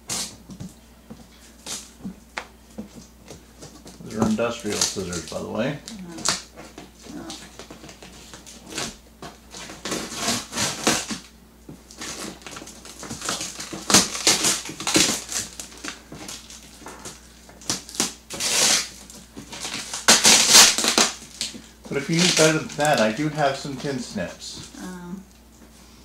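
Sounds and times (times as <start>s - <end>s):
scissors cutting cardboard: 6.2s - 11.2s.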